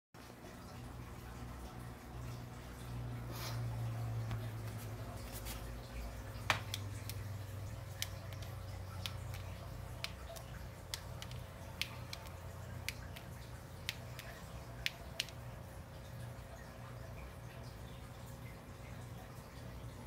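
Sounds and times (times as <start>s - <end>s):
steady low hum: 0.2s - 20.0s
small sharp clicks: 6.5s - 15.5s.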